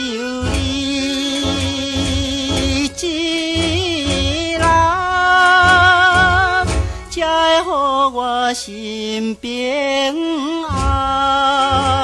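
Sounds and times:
ballad backing music: 0.0 - 12.0
melody with vibrato: 0.0 - 12.0
steady low beat: 0.3 - 7.4.

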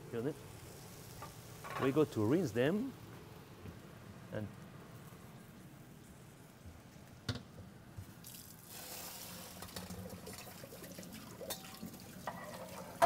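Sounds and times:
tap water running over potatoes: 8.0 - 13.0.

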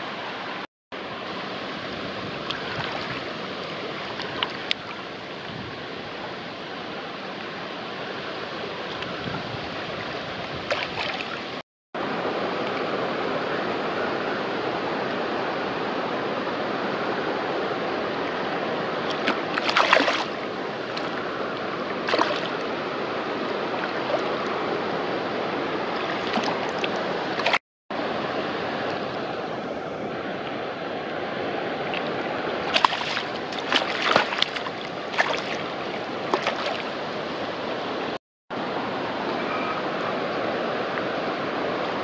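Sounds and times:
river water rushing: 0.0 - 42.0
fish splashing in a net: 19.1 - 20.4, 22.0 - 22.6, 32.7 - 36.9.

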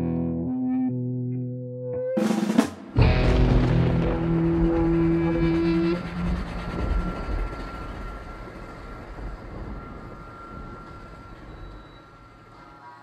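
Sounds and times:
low drone notes: 3.0 - 11.6
rumbling noisy wash: 3.0 - 12.8.

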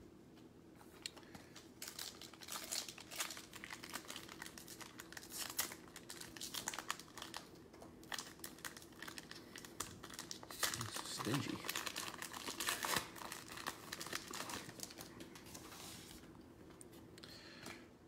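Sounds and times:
foil wrapper crinkling and tearing: 1.5 - 15.7.

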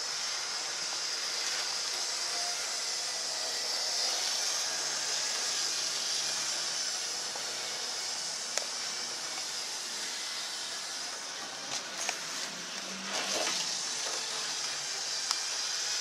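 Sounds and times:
model train rolling on track: 4.0 - 16.0.

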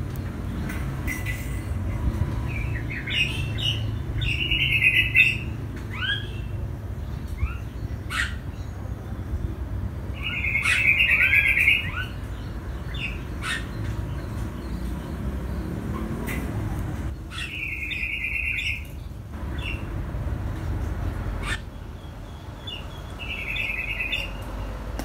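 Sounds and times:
songbirds chirping: 0.0 - 25.0.

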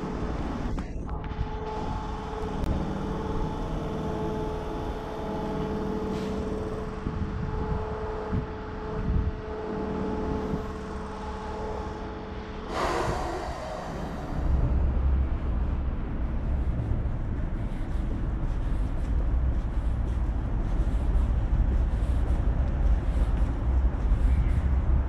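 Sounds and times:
electric train rumble and hum: 0.0 - 25.0.

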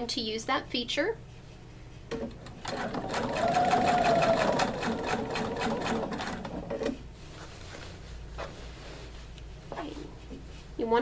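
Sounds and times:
sewing machine motor hum: 2.4 - 7.0.

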